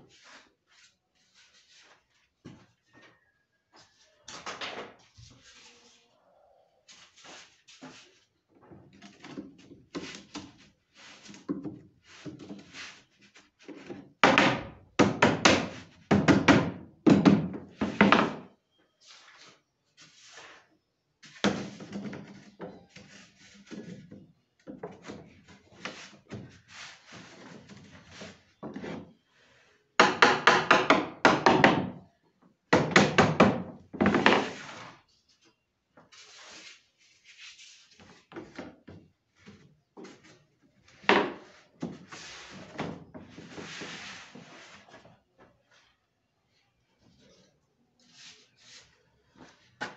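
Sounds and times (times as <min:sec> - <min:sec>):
wooden boards knocking and clattering: 0:13.7 - 0:18.5, 0:30.0 - 0:32.1, 0:32.7 - 0:34.8, 0:40.9 - 0:43.6.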